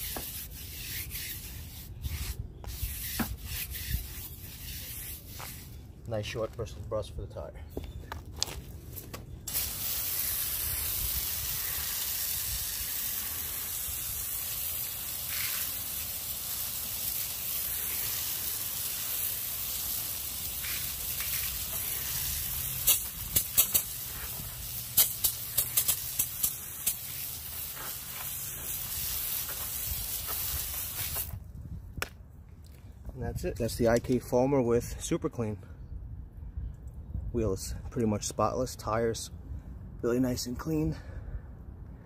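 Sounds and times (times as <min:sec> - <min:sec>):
water spray hissing on wheel: 0:09.5 - 0:31.4
sharp pops and crackles: 0:20.6 - 0:32.2.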